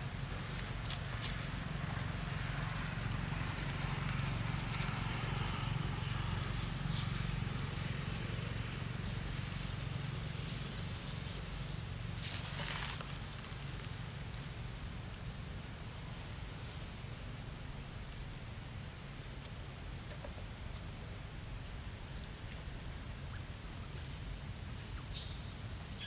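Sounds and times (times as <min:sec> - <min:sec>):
dry leaves rustling and crackling: 0:00.0 - 0:15.2
steady low hum: 0:00.0 - 0:26.0.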